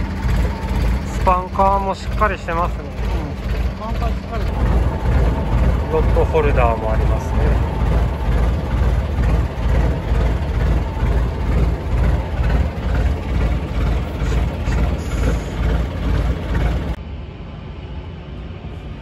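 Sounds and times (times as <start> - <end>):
boat engine idling: 0.0 - 17.0.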